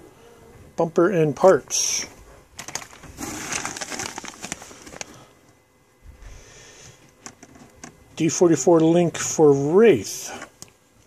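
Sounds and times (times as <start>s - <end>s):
paper and plastic crinkling: 2.6s - 5.3s.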